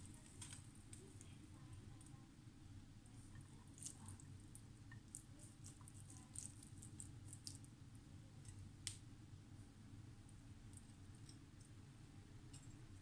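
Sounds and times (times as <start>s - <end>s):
low steady hum: 0.0s - 13.0s
noodles squishing onto plate: 3.2s - 7.7s.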